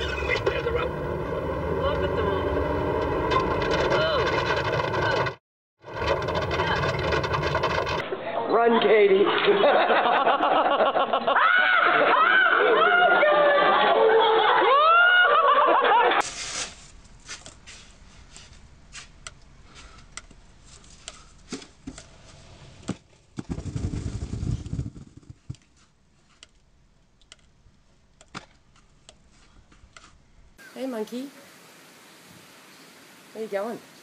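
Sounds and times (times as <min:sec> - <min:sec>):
voices crying out: 0:11.4 - 0:13.8
snow sliding off roof: 0:14.7 - 0:26.4
light scrapes and taps: 0:28.3 - 0:30.2.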